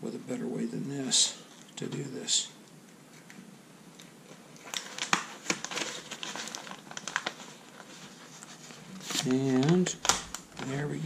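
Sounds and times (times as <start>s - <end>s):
vinyl sheet crinkling: 4.2s - 11.0s.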